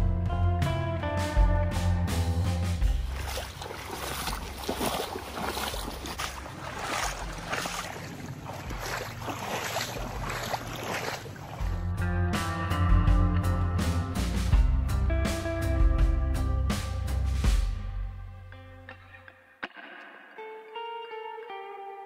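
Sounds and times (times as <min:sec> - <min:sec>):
boots splashing through wet grass: 0:02.7 - 0:11.9.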